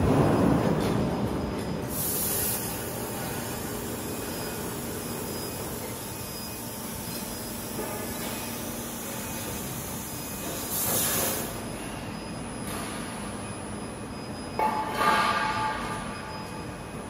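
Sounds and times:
roller conveyor rumbling: 0.0 - 6.5.

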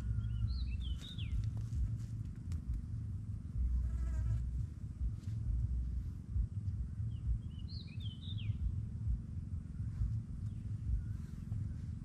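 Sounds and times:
bird chirping: 0.0 - 1.9, 6.4 - 12.0
low outdoor rumble: 0.0 - 12.0.

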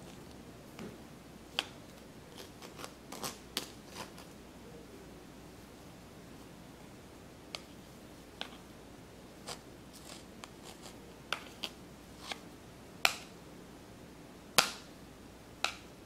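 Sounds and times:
spatula scraping mesh strainer: 9.5 - 12.4.

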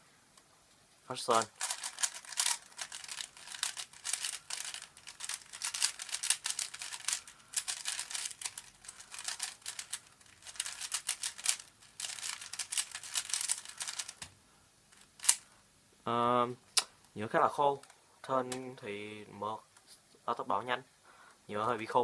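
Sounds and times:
speed cube layers clicking: 1.3 - 14.3.

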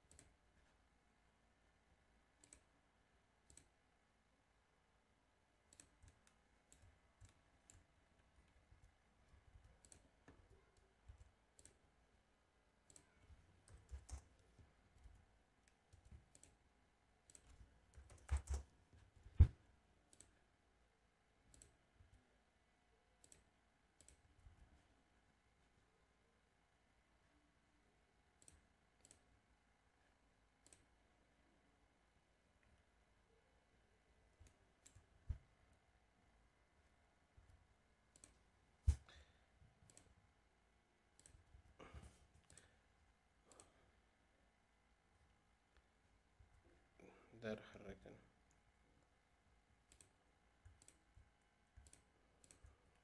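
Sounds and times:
computer mouse clicks: 0.0 - 0.4, 2.4 - 2.8, 3.4 - 3.8, 5.7 - 9.0, 9.6 - 11.8, 12.8 - 16.6, 17.2 - 19.5, 20.1 - 20.4, 21.5 - 21.8, 23.2 - 24.4, 28.4 - 29.3, 30.6 - 30.9, 34.3 - 35.4, 38.1 - 39.2, 39.8 - 40.2, 41.1 - 41.6, 42.3 - 42.8, 43.5 - 43.8, 49.8 - 53.0
keyboard keystrokes: 17.3 - 18.7.

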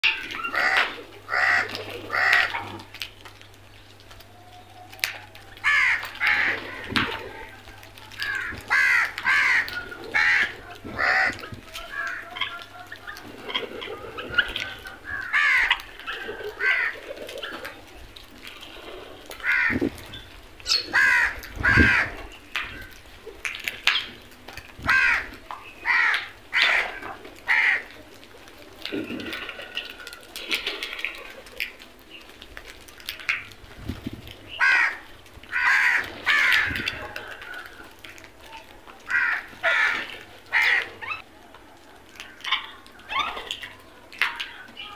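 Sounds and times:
crows cawing: 0.0 - 3.0, 5.0 - 23.6, 24.8 - 28.0, 34.5 - 38.3, 39.0 - 41.2.

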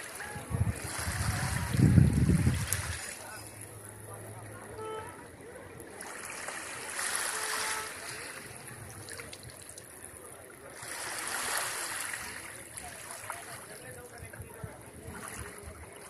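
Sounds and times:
small waves washing on sand: 0.0 - 3.8, 5.7 - 16.0.

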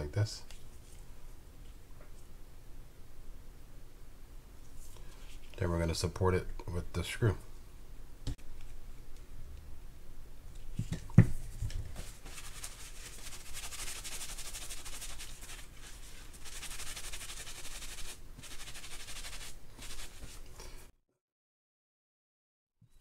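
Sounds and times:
paper towel rubbing a part: 11.9 - 20.4.

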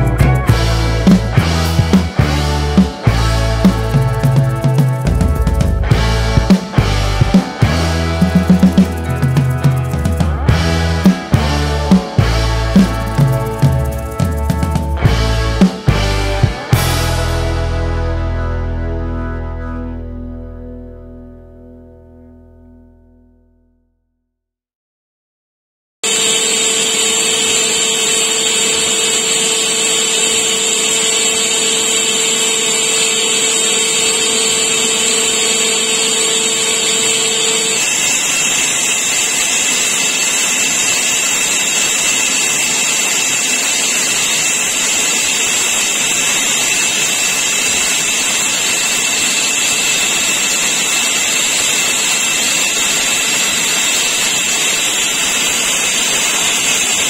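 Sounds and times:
metal lathe whining: 0.0 - 17.6, 26.0 - 57.0
lower machine hum: 0.0 - 23.6, 26.1 - 57.0
hiss of lathe cutting: 26.1 - 57.0.

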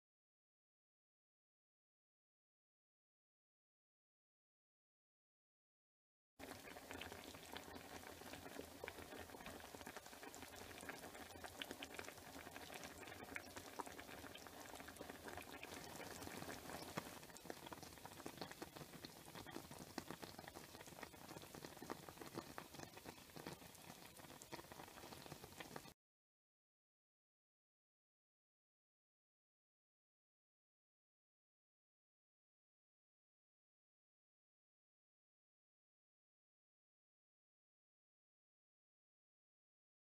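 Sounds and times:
sauce bubbling in a pan: 6.4 - 26.0.

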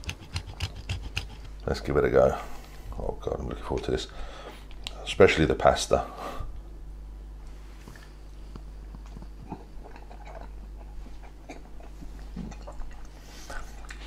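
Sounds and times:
man chewing food: 0.0 - 1.7, 7.8 - 14.0
steady low hum: 0.0 - 14.0.

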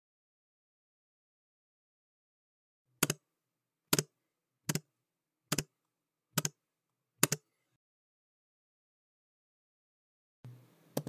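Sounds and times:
computer keyboard keystrokes: 7.2 - 7.4.

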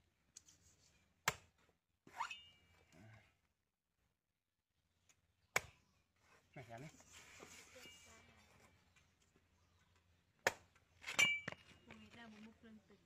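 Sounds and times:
cleaver chopping coconut husk: 1.2 - 1.7, 5.4 - 5.9, 10.4 - 11.6.

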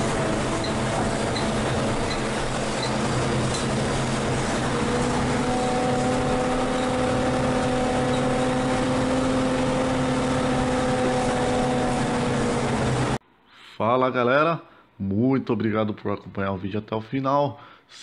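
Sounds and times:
bus engine rumble: 0.0 - 13.2
drivetrain whine: 0.0 - 13.2.

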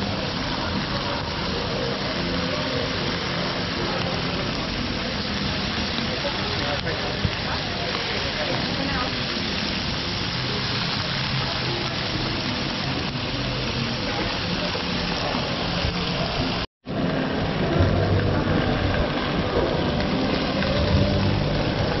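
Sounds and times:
market hubbub: 0.0 - 22.0
meat sizzling: 0.0 - 22.0.

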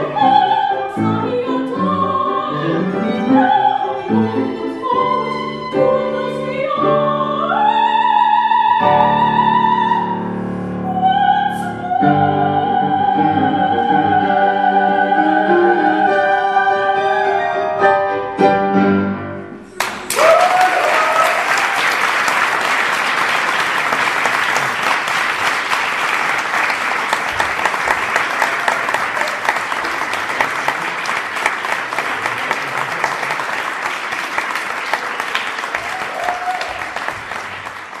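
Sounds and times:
violin and piano playing: 0.0 - 10.2
audience applauding: 19.8 - 38.0.

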